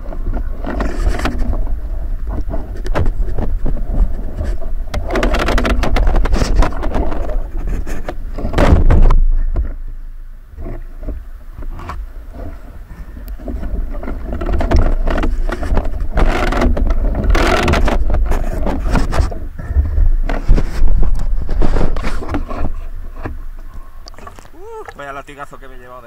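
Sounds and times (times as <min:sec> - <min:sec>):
steady low rumble: 0:00.0 - 0:26.0
sea water splashing: 0:23.7 - 0:25.7.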